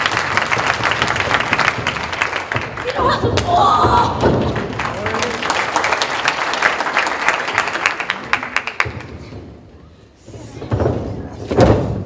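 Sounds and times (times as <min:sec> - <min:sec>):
audience clapping: 0:00.0 - 0:09.4.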